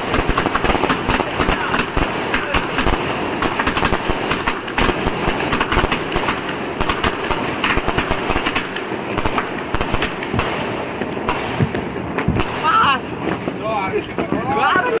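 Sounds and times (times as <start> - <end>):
fireworks launching and bursting: 0.0 - 15.0.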